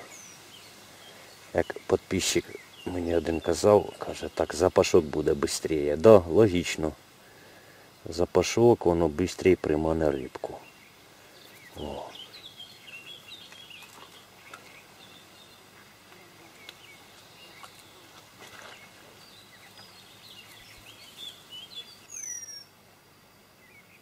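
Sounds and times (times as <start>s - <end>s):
small birds chirping: 0.0s - 22.8s
faint ticks: 16.1s - 18.8s.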